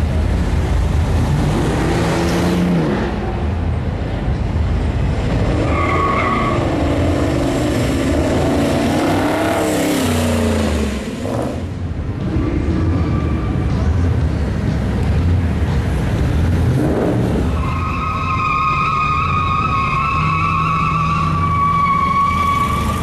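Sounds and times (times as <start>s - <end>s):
car engines revving: 0.0s - 23.0s
high-pitched squeal: 17.5s - 23.0s.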